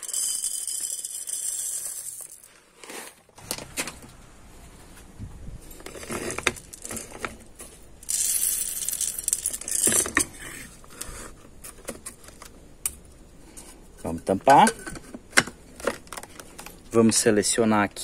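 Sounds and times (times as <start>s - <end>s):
coffee beans clattering into metal bowl: 0.0s - 2.5s, 8.0s - 10.4s.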